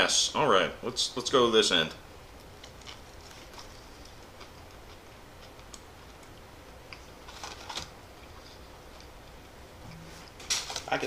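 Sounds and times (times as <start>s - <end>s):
man chewing food: 2.2s - 10.8s
sandwich wrapper rustle: 2.6s - 4.2s, 7.2s - 9.0s, 10.3s - 11.0s.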